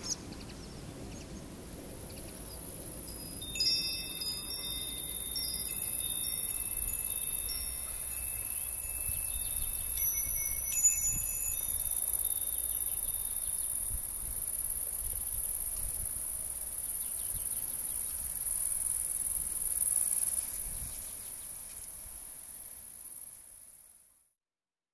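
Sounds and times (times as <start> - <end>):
insects chorus: 1.1 - 24.0
wind chime ringing: 3.0 - 13.4.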